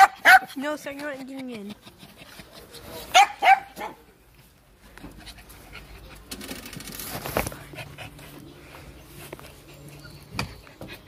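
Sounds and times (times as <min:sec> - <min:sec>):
dog panting: 0:00.0 - 0:03.2, 0:07.6 - 0:11.0.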